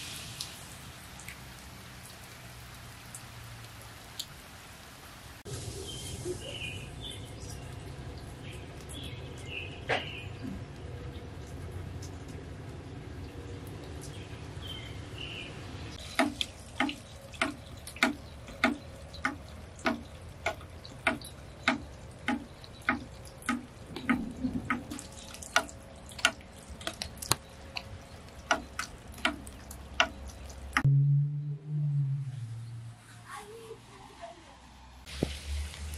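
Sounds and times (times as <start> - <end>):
water dripping: 0.0 - 30.9
low hum: 30.8 - 33.9.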